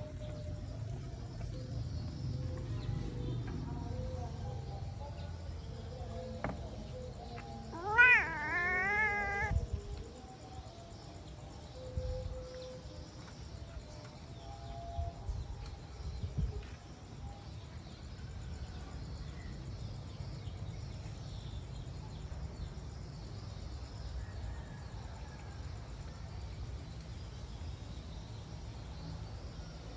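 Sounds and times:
small birds chirping: 5.1s - 9.7s.

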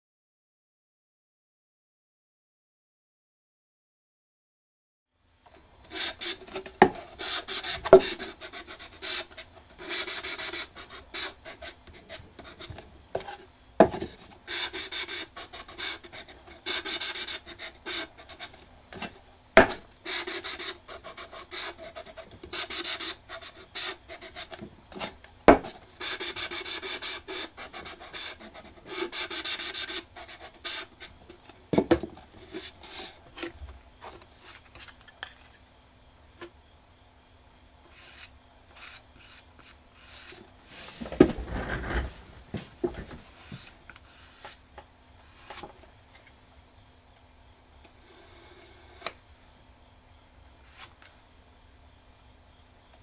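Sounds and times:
rubbing on wooden box: 5.9s - 13.4s, 14.5s - 18.6s, 20.1s - 25.2s, 26.0s - 31.2s.

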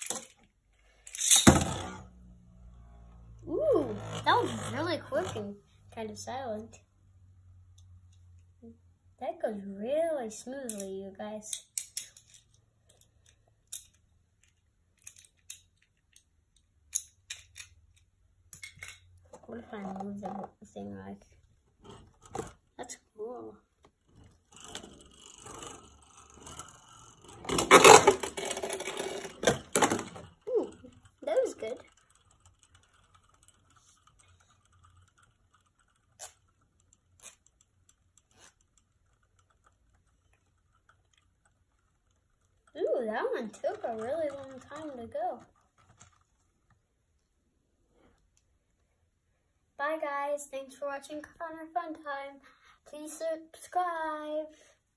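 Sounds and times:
spinning top whirring: 1.1s - 5.8s, 24.0s - 46.3s
plastic parts clicking: 11.5s - 19.0s, 24.0s - 42.8s.

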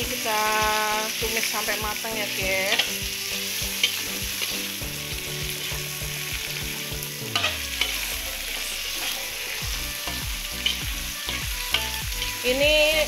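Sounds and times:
vegetables sizzling in hot oil: 0.0s - 13.0s
metal spatula scraping a pan: 2.4s - 12.5s.

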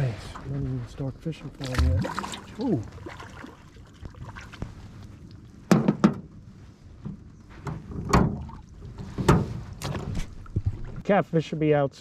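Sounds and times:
knocks on aluminum boat: 5.7s - 6.2s.

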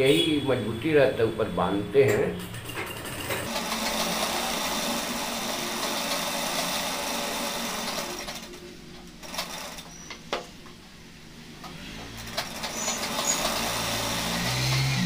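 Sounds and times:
sewing machine running: 2.4s - 10.0s, 11.7s - 15.0s.

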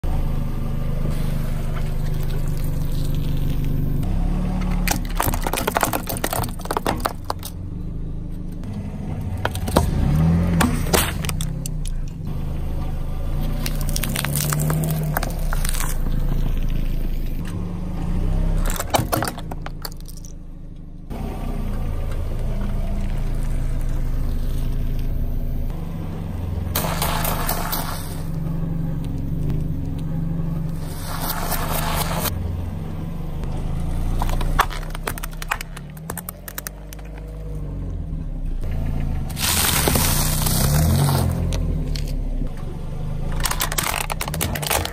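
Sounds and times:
car engine idling: 0.0s - 44.9s
tyre crushing small objects: 4.7s - 7.6s, 9.4s - 12.2s, 13.4s - 16.8s, 18.6s - 20.4s, 34.1s - 37.7s, 39.3s - 42.2s, 43.3s - 44.9s.

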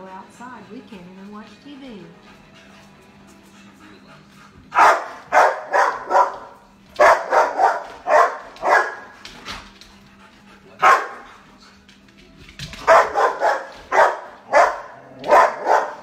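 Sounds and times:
dog barking: 4.7s - 9.2s, 10.8s - 11.4s, 12.8s - 16.0s.

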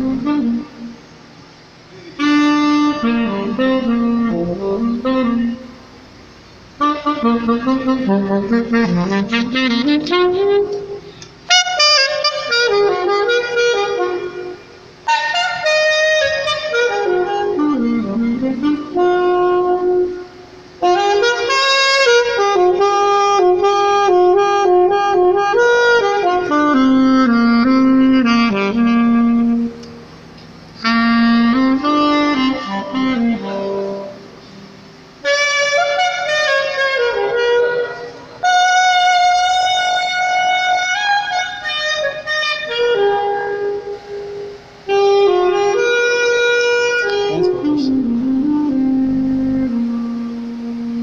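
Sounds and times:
alto saxophone solo: 0.0s - 51.0s.

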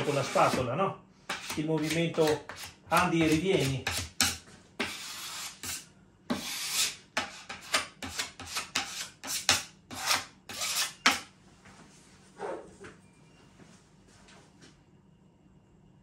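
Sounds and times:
spatula scraping a panel: 0.0s - 0.7s, 1.3s - 11.3s.

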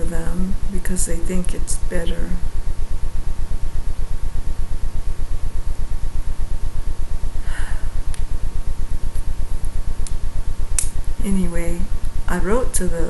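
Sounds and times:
faint steady whine: 0.0s - 13.0s
low mechanical throbbing: 0.0s - 13.0s
short breath: 7.4s - 8.0s.

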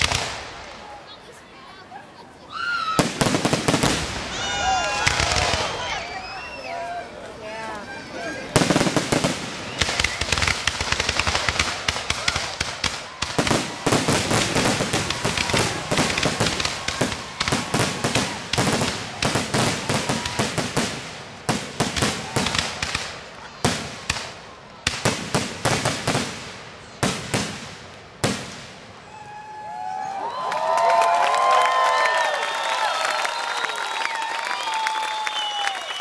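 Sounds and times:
loud firework bangs: 0.0s - 0.9s, 3.0s - 6.0s, 8.5s - 28.9s
fireworks bursting and crackling: 0.0s - 1.8s, 2.8s - 6.6s, 7.8s - 29.4s.

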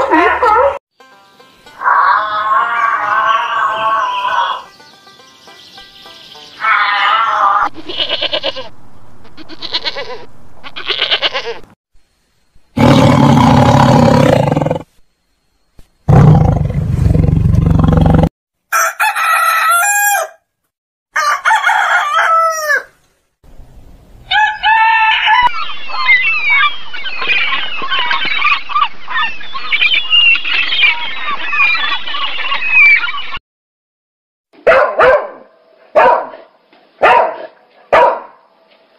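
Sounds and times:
songbirds chirping: 1.0s - 7.6s, 24.4s - 33.4s
goat bleating: 6.6s - 8.7s, 9.3s - 11.7s
loud rough animal calls: 12.8s - 14.9s
rooster crowing: 18.7s - 20.5s, 21.1s - 23.0s, 24.3s - 25.5s.

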